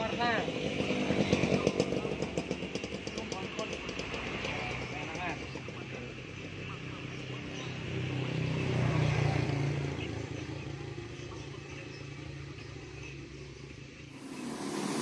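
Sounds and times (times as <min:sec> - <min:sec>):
vehicle engine passing by: 0:14.1 - 0:15.0.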